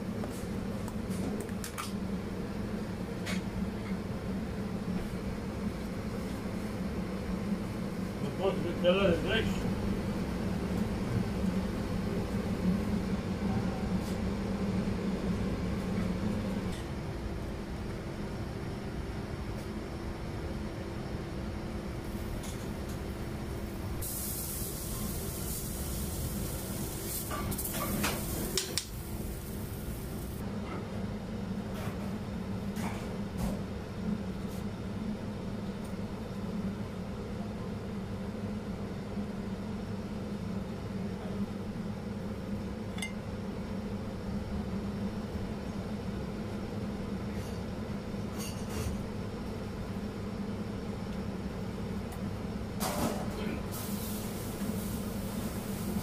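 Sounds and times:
steady machine hum: 0.0 - 52.8
scallop sizzling on griddle: 24.0 - 30.4, 53.7 - 56.0.

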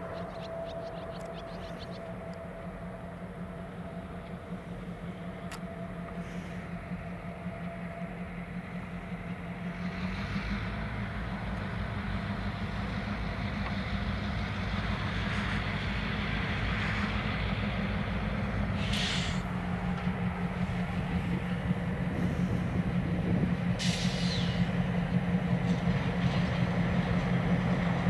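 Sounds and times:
diesel locomotive engines droning: 0.0 - 28.0
short hiss: 18.8 - 19.4, 23.8 - 24.6.

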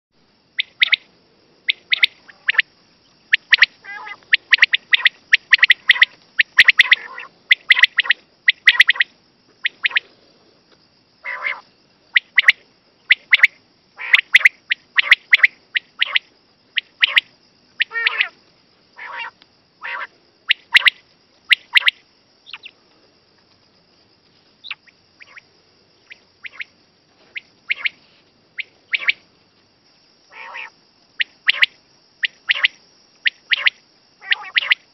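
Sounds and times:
faint high hiss: 0.2 - 34.9
quail calling: 0.6 - 1.1, 1.7 - 2.7, 3.3 - 10.1, 11.2 - 18.4, 19.0 - 22.7, 24.6 - 26.7, 27.3 - 28.0, 28.6 - 29.2, 30.3 - 34.9.

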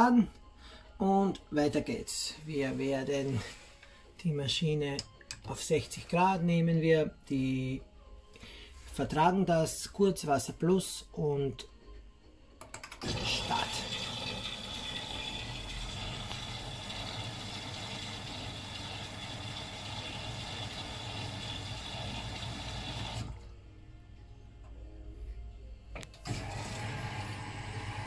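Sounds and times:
water filling washing machine: 13.0 - 23.5, 26.1 - 28.0.

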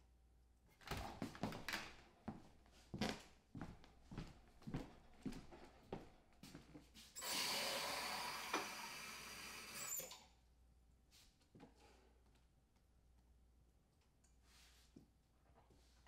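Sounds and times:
footsteps on wooden floor: 1.2 - 7.0
water running from tap: 7.2 - 10.2.

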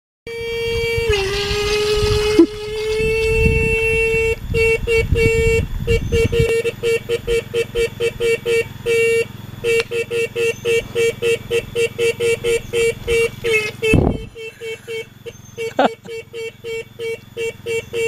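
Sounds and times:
motorcycle horn toots: 0.3 - 18.0.

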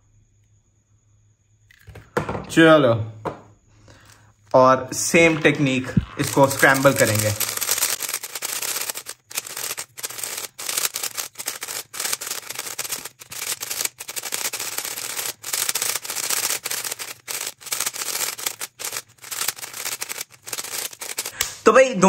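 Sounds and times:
puzzle cube clicking and rasping: 4.9 - 21.4.

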